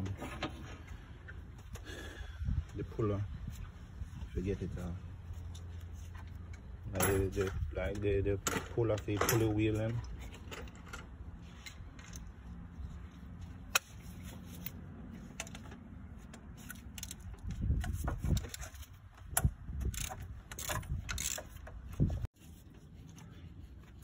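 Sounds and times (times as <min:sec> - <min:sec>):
hand tools clattering on engine parts: 0:06.9 - 0:11.2.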